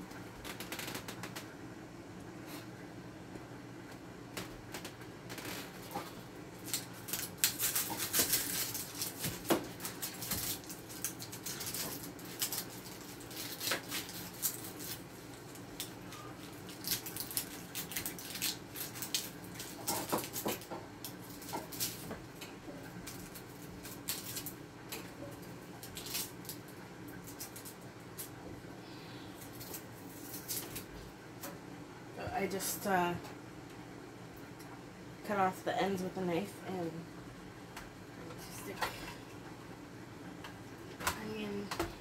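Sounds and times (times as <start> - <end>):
onion skin crackling: 4.4 - 28.4, 29.1 - 31.1.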